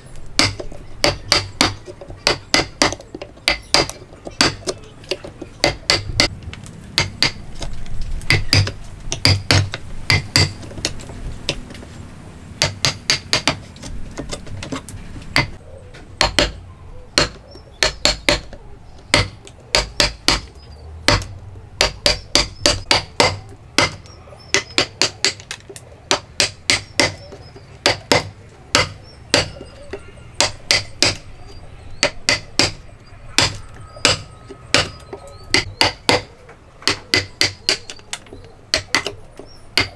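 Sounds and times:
mallet striking chisel: 0.4 - 6.3, 7.0 - 7.4, 8.3 - 11.6, 12.6 - 13.6, 15.4 - 15.6, 16.2 - 16.6, 17.2 - 20.5, 21.1 - 25.4, 26.1 - 31.2, 32.0 - 32.8, 33.4 - 38.0, 38.7 - 39.2.

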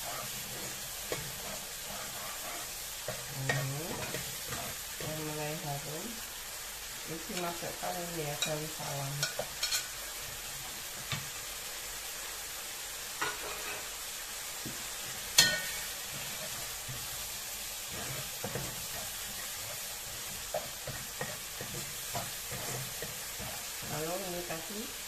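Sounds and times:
metal spatula scraping a wok: 0.0 - 5.1, 15.1 - 24.0
paste sizzling in oil: 0.0 - 25.0
spatula clanking on pan: 9.2 - 9.9, 13.2 - 13.9, 15.3 - 17.1.

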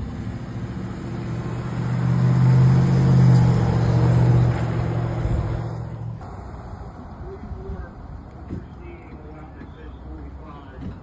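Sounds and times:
pickup truck driving past: 0.0 - 7.0.

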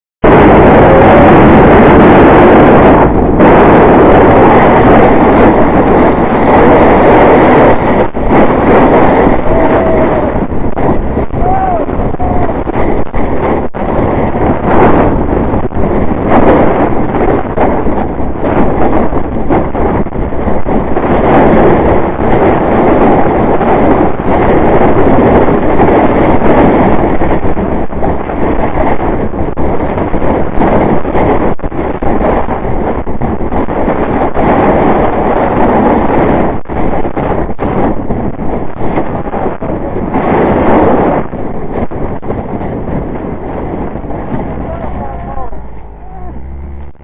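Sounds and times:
hull sliding over snow: 0.2 - 47.0
wind on camera: 0.2 - 47.0.

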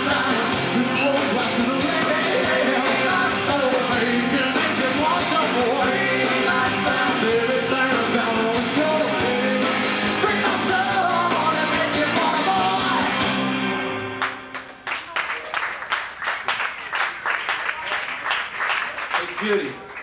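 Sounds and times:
man singing lead vocals: 0.0 - 14.0
bass guitar: 0.0 - 14.6
drums: 0.0 - 14.8
electric guitar: 0.0 - 14.8.

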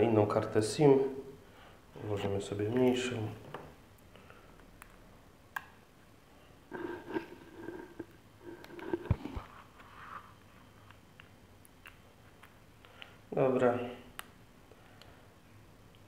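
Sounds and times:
light scrapes of tablet handling: 6.7 - 10.6.

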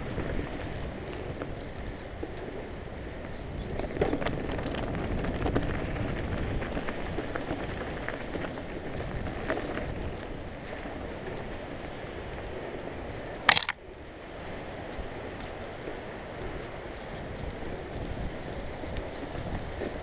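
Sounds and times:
tyres crunching over gravel: 13.5 - 13.8
bike clicks and rattles: 13.5 - 14.0.

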